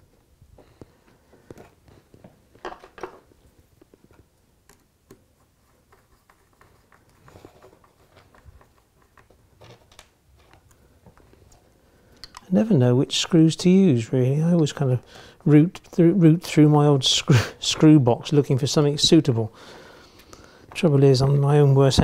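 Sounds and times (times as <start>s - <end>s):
hands handling plastic parts: 1.0s - 12.5s.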